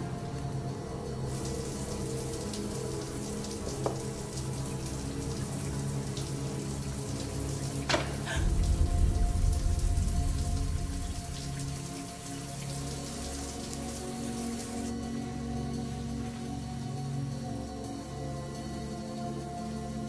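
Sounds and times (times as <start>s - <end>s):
low music score: 0.0s - 20.0s
deep rumble: 8.3s - 12.6s.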